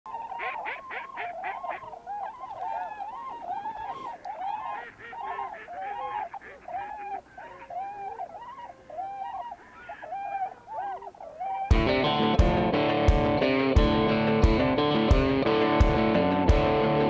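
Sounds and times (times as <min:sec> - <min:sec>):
waterfowl calling: 0:00.1 - 0:12.2.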